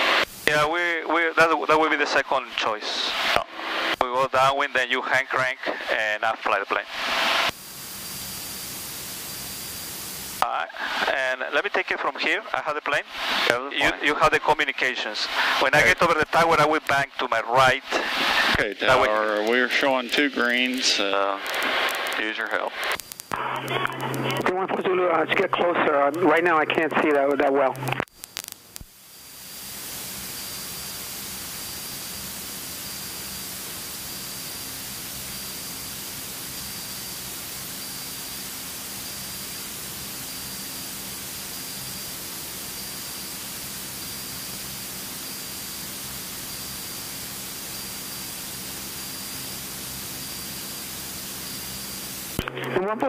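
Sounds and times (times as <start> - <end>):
aircraft cockpit hiss: 0.0 - 28.0, 28.9 - 53.0
faint steady hum: 0.0 - 53.0
thin high whine: 0.0 - 53.0.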